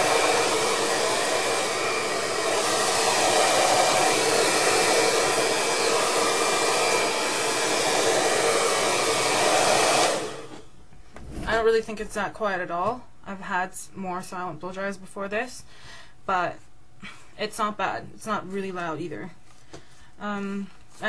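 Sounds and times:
hair dryer blowing: 0:00.0 - 0:10.8.

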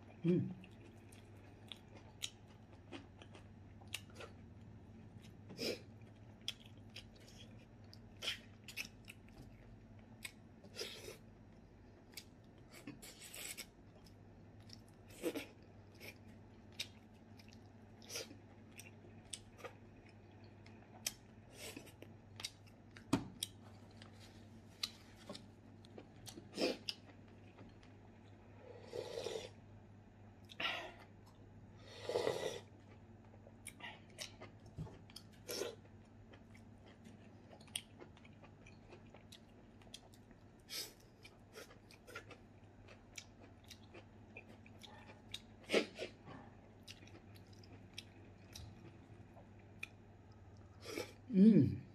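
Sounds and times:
person chewing and smacking: 0:00.6 - 0:28.4, 0:32.8 - 0:50.8
person slurping broth: 0:28.8 - 0:29.6.

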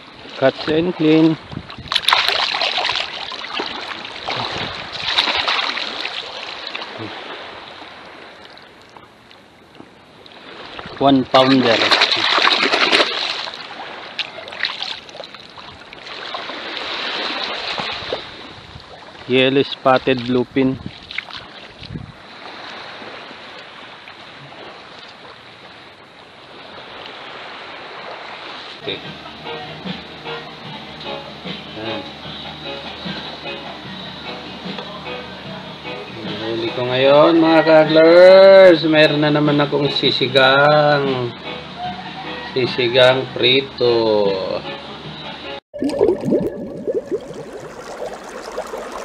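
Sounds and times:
surf washing on shore: 0:00.0 - 0:29.2, 0:45.9 - 0:49.0
seawater splashing around hands: 0:01.8 - 0:07.3, 0:11.4 - 0:18.4, 0:20.0 - 0:22.9, 0:45.8 - 0:49.0.

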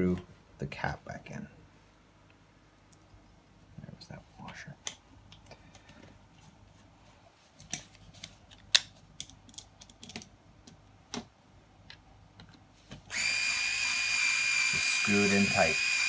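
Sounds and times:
small parts clicking and tapping: 0:07.6 - 0:12.6
electric screwdriver whining: 0:13.1 - 0:16.0.

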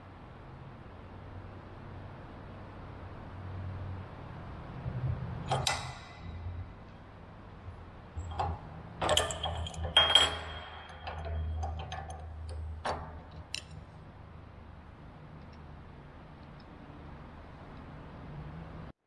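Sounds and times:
metal clinks and knocks on vise: 0:08.2 - 0:13.8.

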